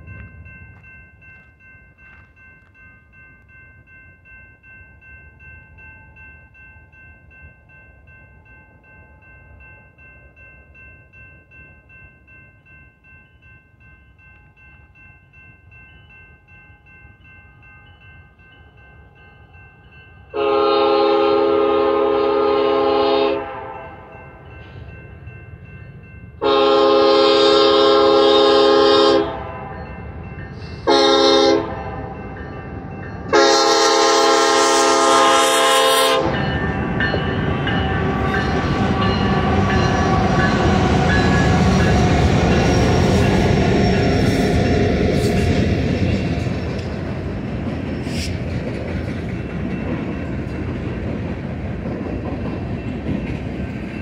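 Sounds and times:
freight train rumble: 0.0s - 54.0s
locomotive air horn blasts: 20.3s - 24.0s, 26.4s - 29.7s, 30.8s - 32.0s, 33.3s - 36.4s.

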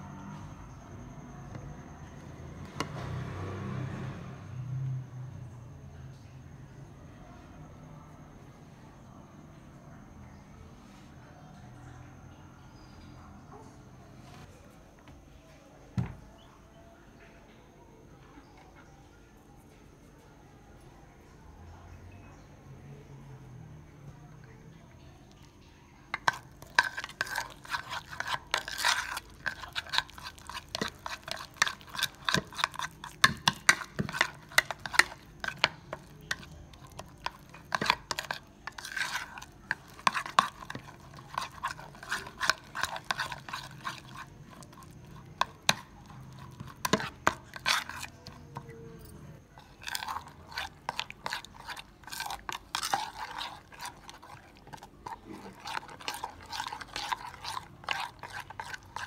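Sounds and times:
metal spoon mashing paste in bowl: 26.0s - 59.0s.

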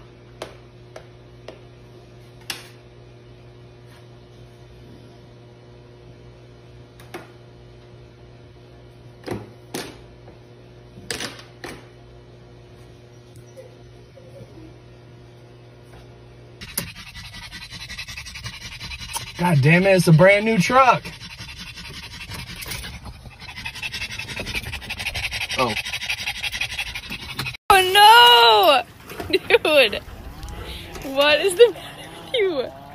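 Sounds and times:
steady low hum: 12.0s - 27.6s.

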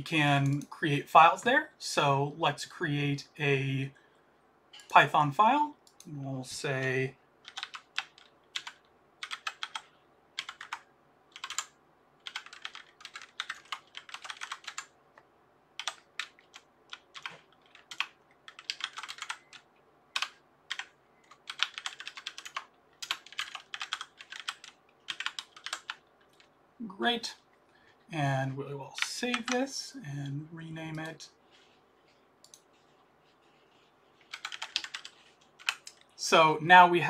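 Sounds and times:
typing on computer keyboard: 7.4s - 14.9s, 15.8s - 26.5s, 34.2s - 36.0s.

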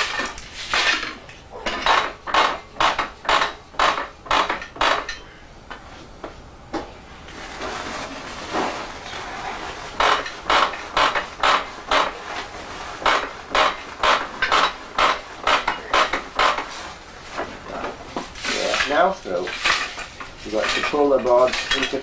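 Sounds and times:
wooden loom clacking and knocking: 0.0s - 5.2s, 10.0s - 12.2s, 13.0s - 16.7s, 17.4s - 22.0s.

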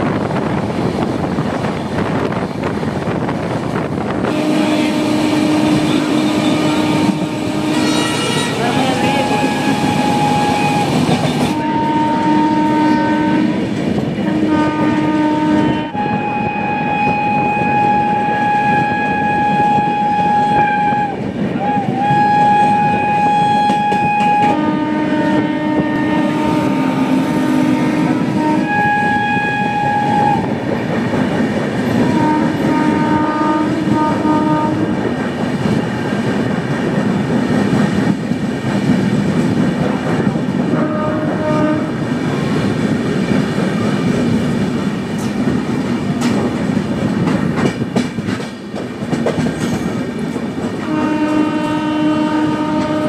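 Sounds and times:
train rumbling on rails: 0.0s - 53.0s
train horn blasts: 4.2s - 30.5s, 32.0s - 35.0s, 40.7s - 42.0s, 50.8s - 53.0s.

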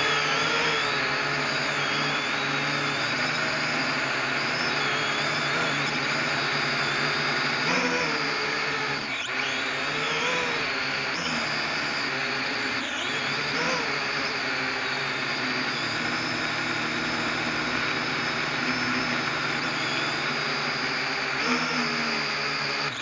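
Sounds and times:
drone motors whining: 0.0s - 23.0s.

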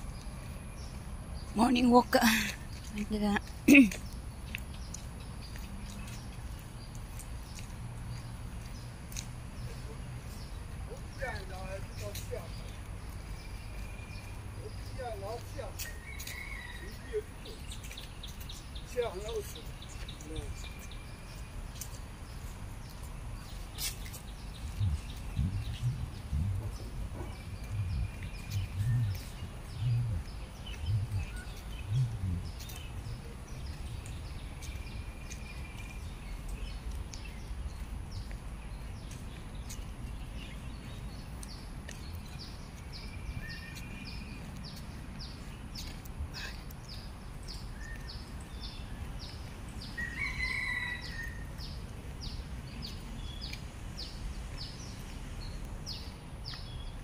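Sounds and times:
birds whistling: 24.0s - 34.1s
low background rumble: 24.3s - 39.1s
low thuds: 24.6s - 33.8s.

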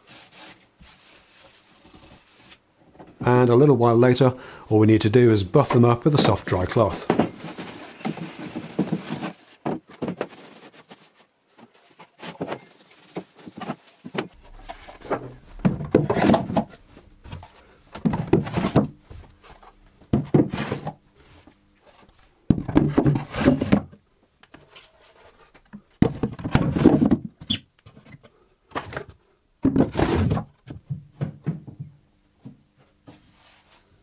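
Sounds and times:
wooden boxes scraping and knocking: 6.2s - 11.0s, 11.6s - 31.7s.

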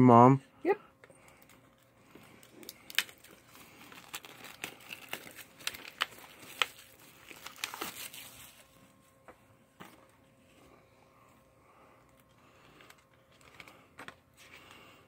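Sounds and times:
plastic shrink-wrap crinkling: 1.2s - 8.8s, 12.1s - 14.9s.

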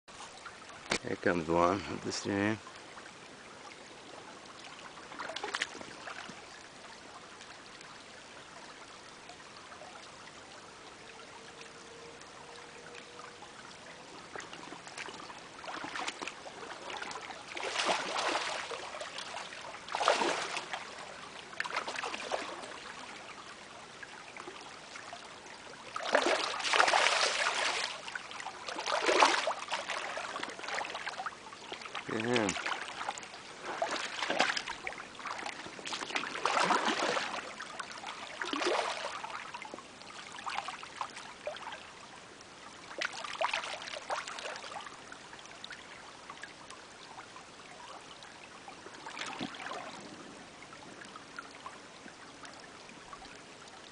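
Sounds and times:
creek water trickling: 0.1s - 53.9s
loud splashes: 17.6s - 18.9s, 19.9s - 20.8s, 26.0s - 28.0s, 35.9s - 37.4s.

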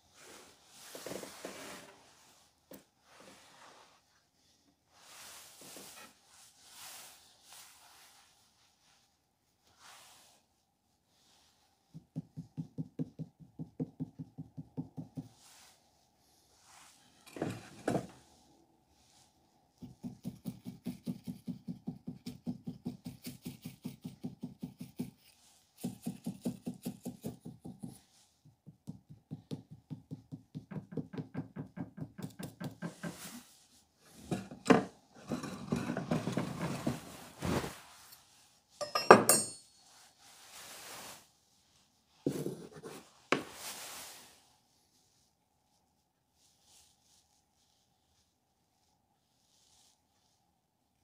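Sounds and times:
irregular knocks and handling noises: 0.2s - 7.1s, 11.4s - 15.8s, 16.7s - 18.4s, 19.7s - 41.2s, 42.1s - 44.3s.

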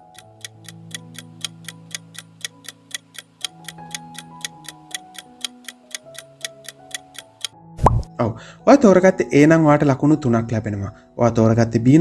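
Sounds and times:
clock ticking: 0.0s - 7.6s.

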